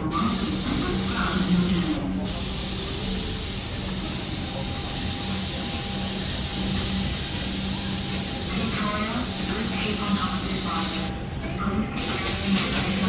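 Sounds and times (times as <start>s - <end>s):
train carriage running on track: 0.0s - 13.0s.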